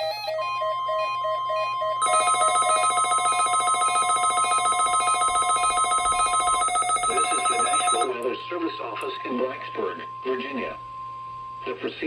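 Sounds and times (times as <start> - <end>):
trilling electronic alert beeps: 2.0 - 8.1.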